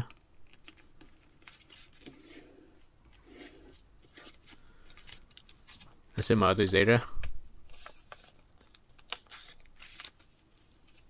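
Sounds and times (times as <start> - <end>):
paper rustling and creasing: 0.4 - 6.0, 7.7 - 11.0.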